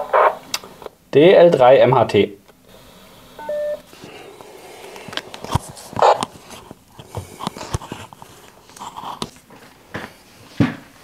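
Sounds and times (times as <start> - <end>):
short electronic beep: 3.4 - 3.8.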